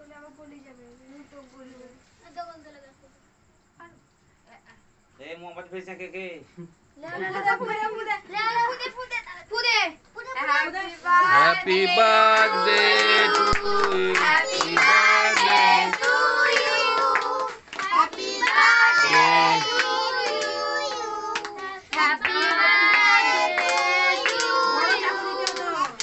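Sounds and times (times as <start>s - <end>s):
group singing birthday song: 10.8s - 26.0s
people clapping along: 11.4s - 26.0s.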